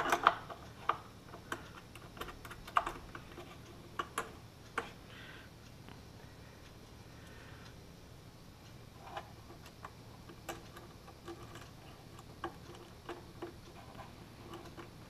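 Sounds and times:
small clicks and taps on metal fittings: 0.0s - 5.0s, 9.0s - 15.0s.

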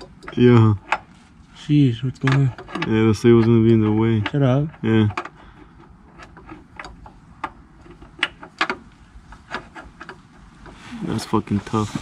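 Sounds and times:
hand tools clicking and tapping: 0.0s - 1.1s.

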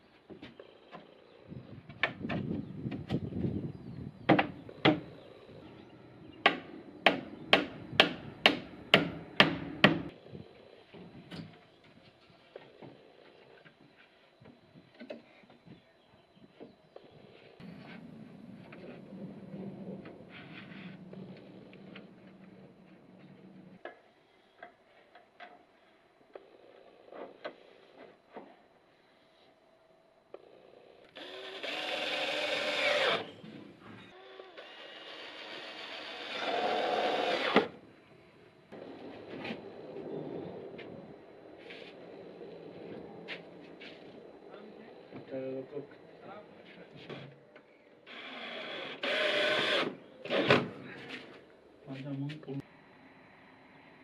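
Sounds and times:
hammer on wooden board: 6.5s - 10.1s.

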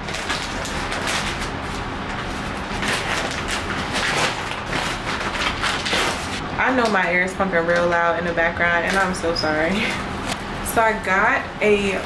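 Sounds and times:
paper packaging rustling: 0.0s - 6.4s
air conditioning rushing: 0.0s - 12.0s.

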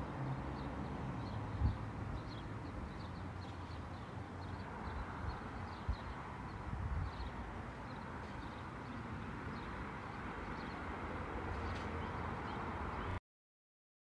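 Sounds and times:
wind buffeting the microphone: 1.2s - 3.0s, 4.4s - 9.8s.

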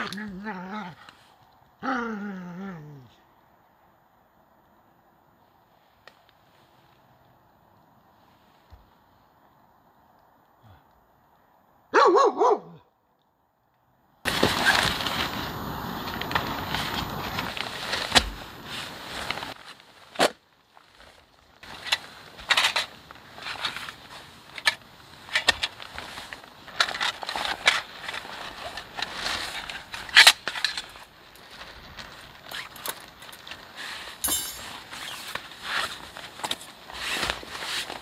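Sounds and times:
nylon sack rustling: 14.3s - 38.0s
metal wire pieces clinking: 34.2s - 35.0s.

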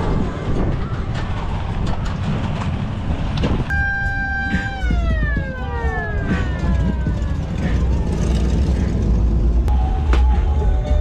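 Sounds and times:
steady low rumble: 0.0s - 11.0s
siren winding down: 3.7s - 8.8s.

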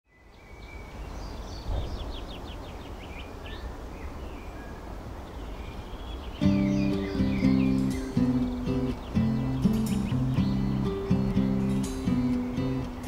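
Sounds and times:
birds chirping and singing: 0.1s - 13.0s
guitar music: 6.4s - 13.0s.

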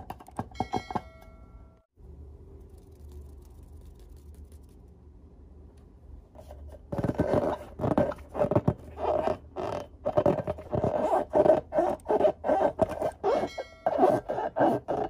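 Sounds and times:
balloon rubber squeaking: 6.9s - 15.0s.

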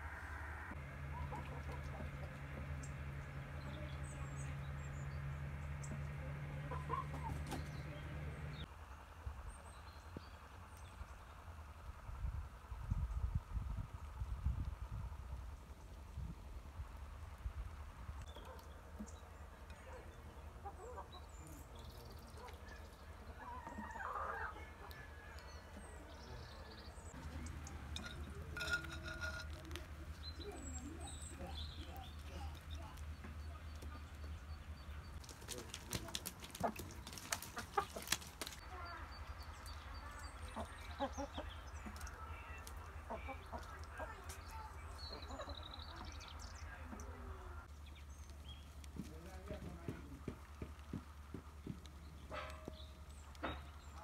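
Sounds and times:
distant farmyard fowl calling: 0.0s - 3.9s, 4.5s - 8.5s, 22.4s - 26.1s
low steady rumble: 0.0s - 35.2s
hens clucking: 1.1s - 2.9s, 5.8s - 8.5s, 27.1s - 38.8s, 39.8s - 47.3s.

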